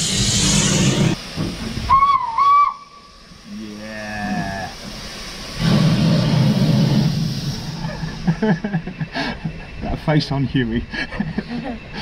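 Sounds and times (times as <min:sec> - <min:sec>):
steam locomotive hissing steam: 0:00.0 - 0:09.7
wavering whistle blast: 0:01.9 - 0:03.2.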